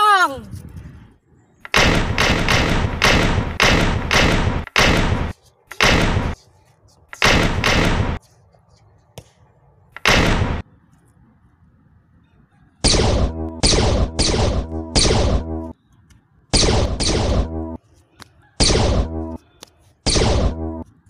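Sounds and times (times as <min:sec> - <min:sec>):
gunshot sound effects: 0:01.7 - 0:06.4, 0:07.2 - 0:08.2, 0:10.0 - 0:10.6, 0:12.8 - 0:15.7, 0:16.6 - 0:17.8, 0:18.6 - 0:19.4, 0:20.1 - 0:20.8.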